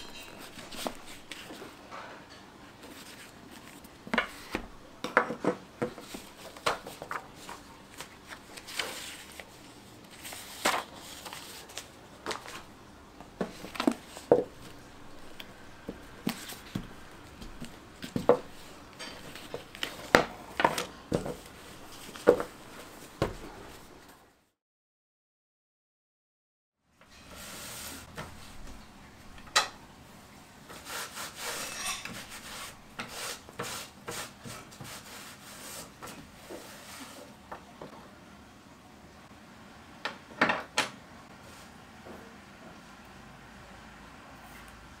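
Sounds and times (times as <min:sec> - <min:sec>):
book and paper knocking on wooden table: 0:13.4 - 0:18.6, 0:19.2 - 0:22.6, 0:23.2 - 0:23.5.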